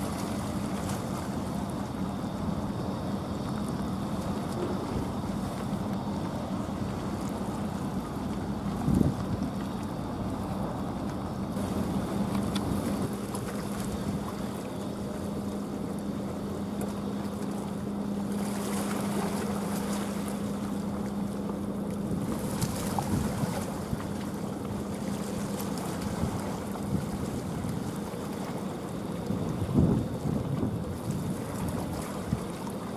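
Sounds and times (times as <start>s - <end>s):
ship engine humming: 0.0s - 32.9s
wind noise on microphone: 8.8s - 9.5s, 29.5s - 32.4s.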